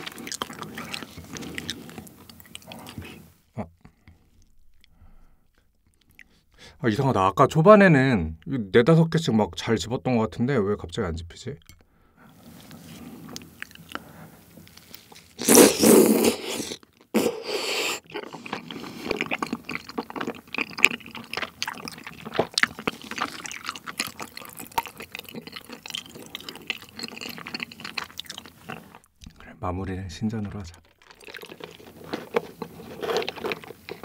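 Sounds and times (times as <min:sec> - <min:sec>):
chewing with sticky clicks: 0:00.0 - 0:03.2, 0:03.8 - 0:06.3, 0:18.0 - 0:29.4, 0:30.4 - 0:34.0
wet mouth sounds: 0:14.8 - 0:29.4, 0:30.8 - 0:34.0.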